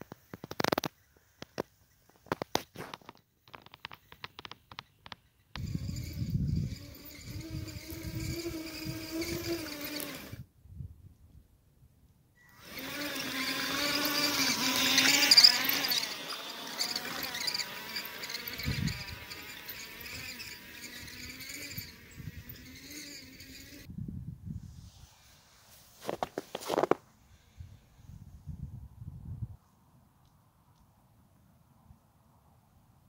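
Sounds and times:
electric motor and gearbox whining: 5.6 - 10.4, 12.6 - 23.9.

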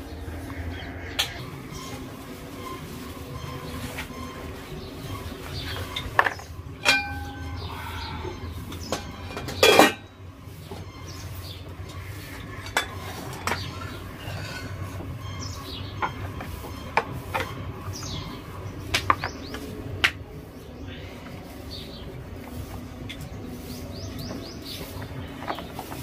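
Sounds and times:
metal cooking vessels clinking: 5.2 - 7.7, 8.4 - 10.9, 11.9 - 15.0.

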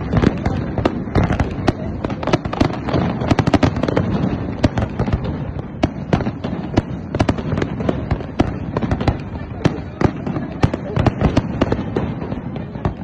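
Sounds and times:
fireworks bursting with sharp bangs: 0.0 - 13.0.

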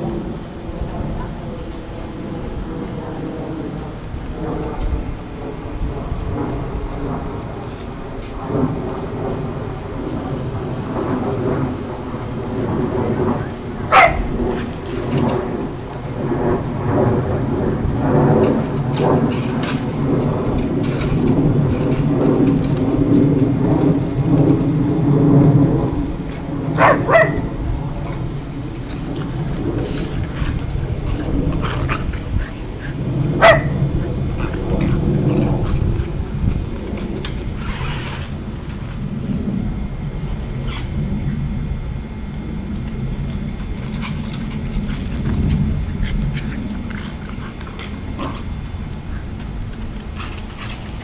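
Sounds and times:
steady low rumble: 0.0 - 51.0
puppy barks: 13.9 - 14.3, 26.8 - 27.5, 33.4 - 33.8
puppies yipping: 33.4 - 33.7
puppies scuffling: 43.3 - 51.0.

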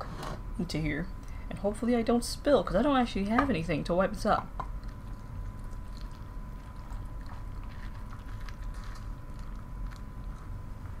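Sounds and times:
milk trickling onto cereal: 4.8 - 10.6.

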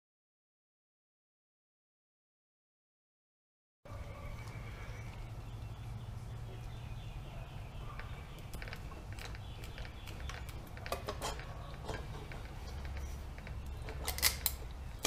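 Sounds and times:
steady low hum: 3.9 - 15.0
metal clicks and gritty scraping: 8.0 - 15.0.

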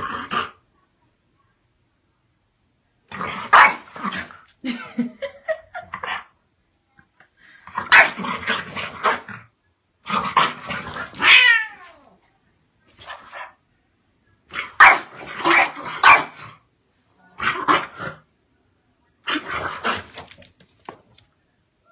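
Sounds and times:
dog barking playfully: 3.5 - 4.2, 7.8 - 9.3, 14.8 - 16.4
cat growling: 8.4 - 12.2.

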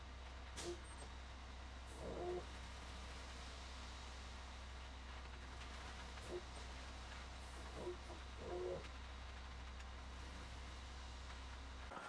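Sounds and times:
concrete mixer truck rumbling: 0.0 - 12.0.

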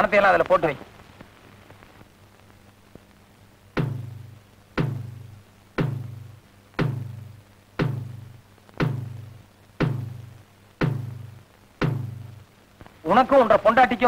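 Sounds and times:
low ringing drum hits: 3.8 - 12.4.

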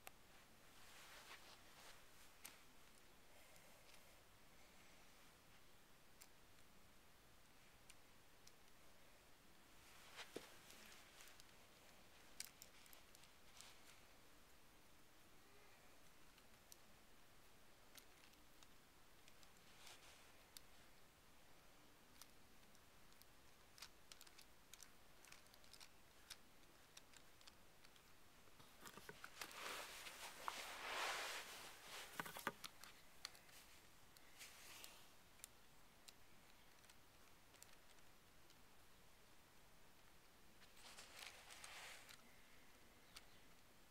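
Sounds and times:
rustling and clicking: 0.0 - 4.8, 9.8 - 14.2, 17.8 - 21.0, 22.0 - 38.6, 39.9 - 43.7
plastic parts clicking and rattling: 10.4 - 14.0, 22.1 - 30.2, 32.0 - 34.5, 35.4 - 38.6.

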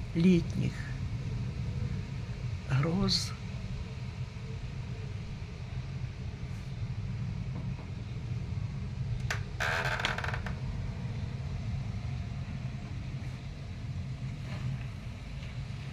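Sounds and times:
low rumble of thunderstorm: 0.0 - 15.9.

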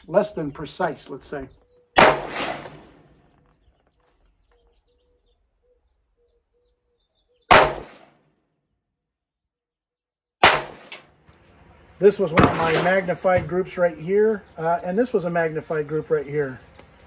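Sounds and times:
rifle shots: 2.0 - 3.3, 7.5 - 8.2, 10.4 - 11.2, 12.3 - 13.3.

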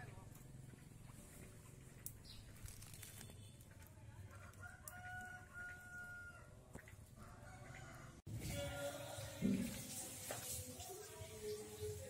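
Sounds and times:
rooster crowing: 4.5 - 6.5, 7.2 - 8.2.

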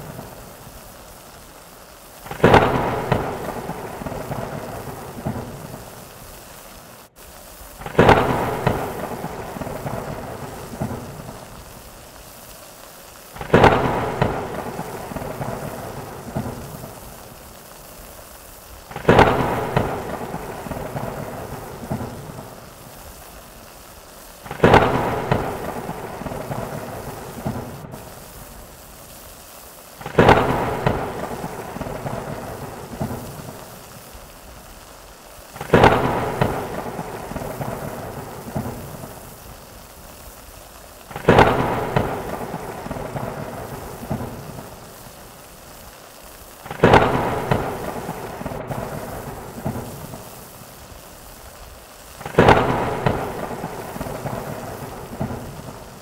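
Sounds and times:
steady rain: 0.0 - 56.0
thunderclap rolling: 2.2 - 6.4, 7.8 - 12.4, 13.4 - 17.9, 18.8 - 23.6, 24.4 - 28.7, 30.0 - 33.8, 35.6 - 39.4, 41.1 - 44.8, 46.6 - 50.4, 52.2 - 56.0.

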